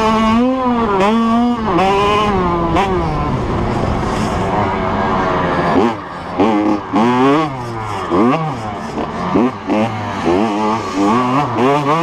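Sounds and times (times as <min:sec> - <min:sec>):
motocross bike engine revving: 0:00.0 - 0:12.0.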